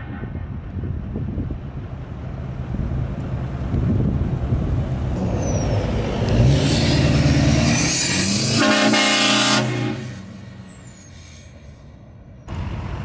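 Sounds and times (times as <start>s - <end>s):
diesel pickup driving past: 1.6s - 13.0s
train horn blast: 8.5s - 10.2s.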